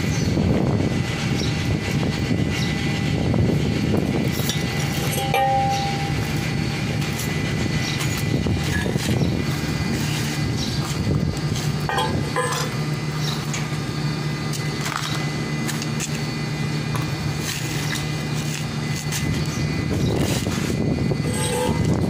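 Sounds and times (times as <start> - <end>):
machine engine humming: 0.0 - 22.0
metal knocks and clanks: 4.5 - 6.2, 11.9 - 12.8.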